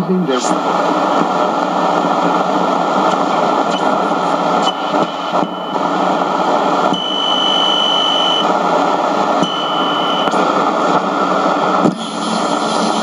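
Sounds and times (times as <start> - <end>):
radio static hiss: 0.0 - 13.0
steady high whistle: 6.9 - 8.5.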